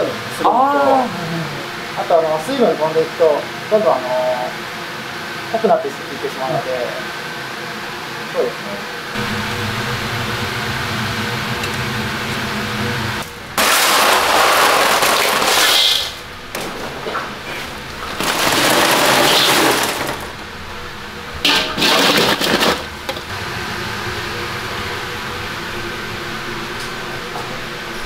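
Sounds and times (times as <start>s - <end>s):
ventilation hum: 0.0s - 28.0s
crushed ice crunching and clattering: 13.6s - 16.2s, 18.0s - 20.4s, 21.5s - 22.9s.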